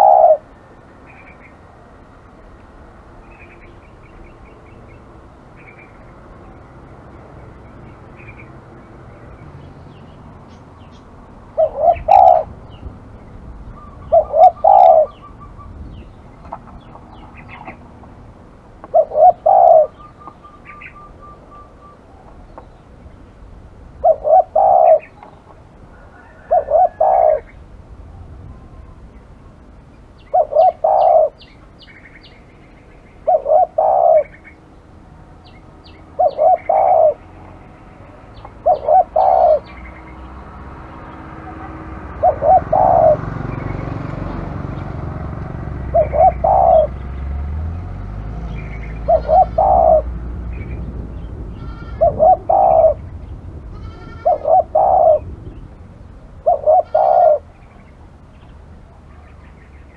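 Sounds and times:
dove cooing: 0.0s - 0.6s, 11.5s - 12.6s, 13.8s - 15.8s, 18.8s - 22.4s, 24.0s - 25.4s, 26.0s - 27.6s, 30.3s - 31.4s, 33.2s - 34.6s, 36.1s - 37.4s, 38.4s - 39.9s, 41.4s - 47.1s, 48.5s - 50.8s, 51.6s - 53.1s, 53.8s - 55.4s, 56.4s - 57.9s
faint high bird chirps: 19.0s - 22.8s
low background rumble: 48.2s - 56.5s.

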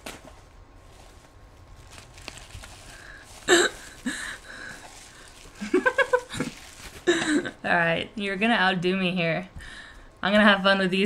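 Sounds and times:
bubble wrap rustling and clicking: 0.0s - 7.4s.

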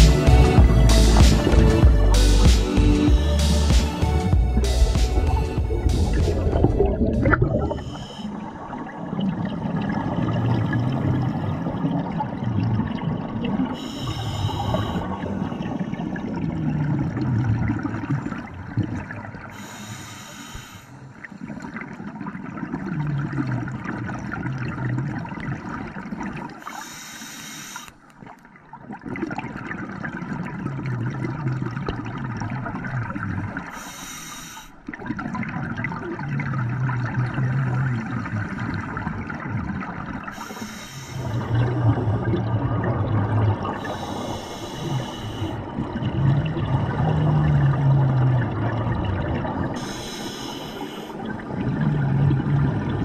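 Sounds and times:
exhaled air bubbling: 0.0s - 53.0s
regulator inhale hiss: 13.8s - 15.2s, 19.5s - 21.2s, 26.6s - 28.0s, 33.7s - 34.8s, 40.3s - 41.5s, 43.8s - 45.6s, 49.7s - 51.3s.

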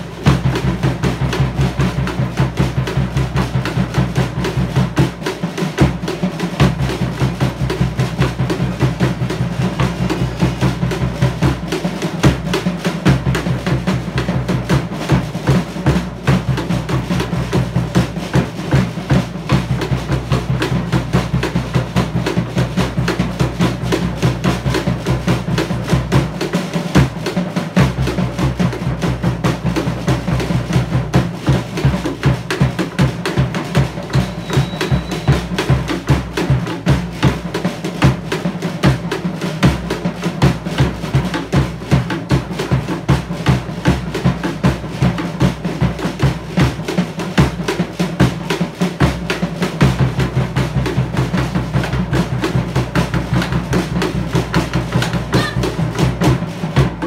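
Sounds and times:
drum ensemble playing: 0.0s - 57.0s.

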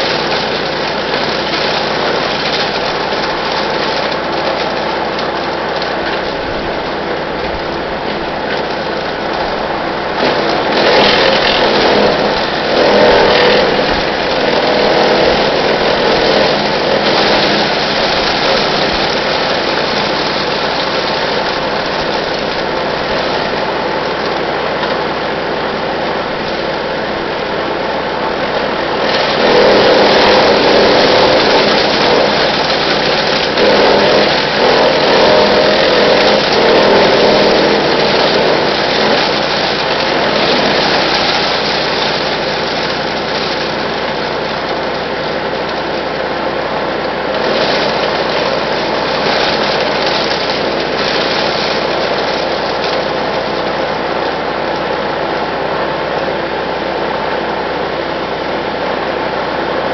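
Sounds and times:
branches being chipped: 0.0s - 24.4s, 28.7s - 46.3s
chipper shredder running: 0.0s - 59.9s.

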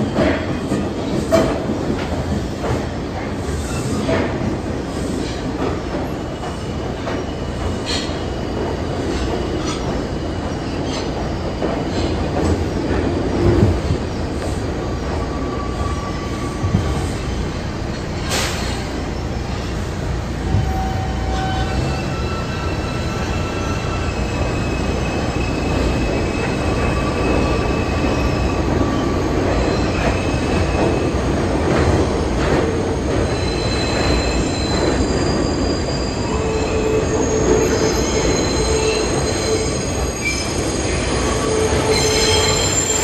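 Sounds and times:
subway train rumbling on rails: 0.0s - 43.0s
high wheel squeals: 20.5s - 31.0s, 33.2s - 43.0s.

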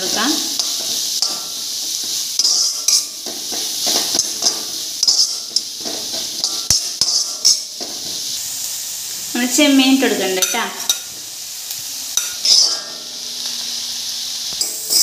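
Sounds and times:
vegetables sizzling in a pan: 0.0s - 15.0s
utensil scraping and clinking pan: 0.6s - 8.1s, 12.2s - 13.1s, 14.6s - 15.0s.

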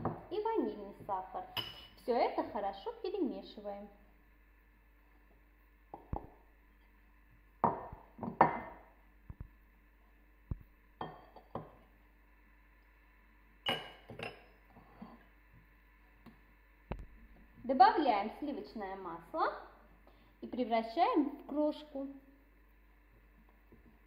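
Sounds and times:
glass and ceramic bowls clinking: 1.5s - 2.0s, 11.0s - 11.7s, 13.6s - 15.2s.

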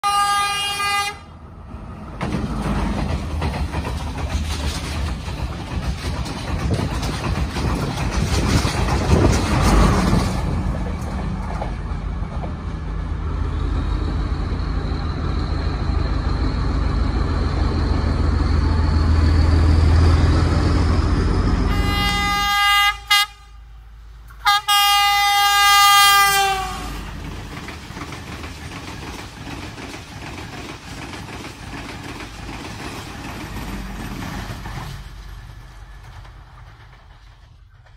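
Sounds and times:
train horn: 0.0s - 1.4s, 21.7s - 27.1s
diesel train passing: 0.0s - 37.9s
wheels on rails: 2.0s - 22.4s, 25.8s - 37.9s.

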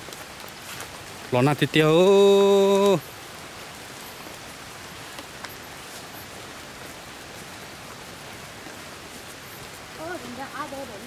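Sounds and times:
rain falling: 0.0s - 11.0s
faint ticks: 5.0s - 6.3s.

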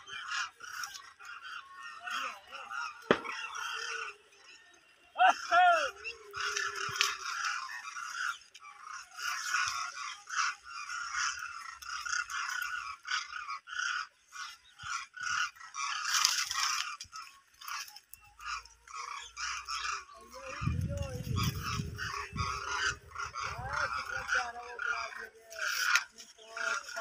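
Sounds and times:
flock of cranes calling: 0.0s - 27.0s.

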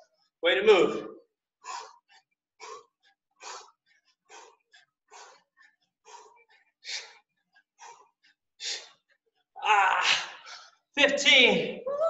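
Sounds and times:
person breathing hard: 1.5s - 10.9s.

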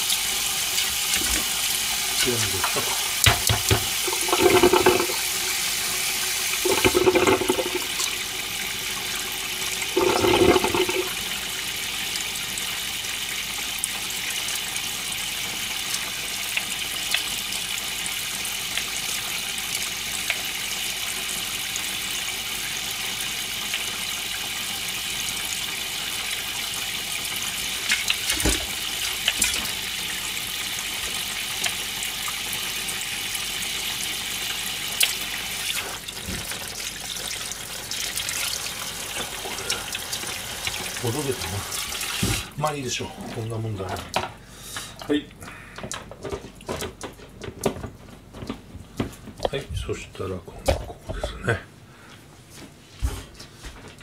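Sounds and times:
tap water into metal colander: 2.2s - 5.3s, 6.6s - 8.2s, 9.9s - 11.2s.

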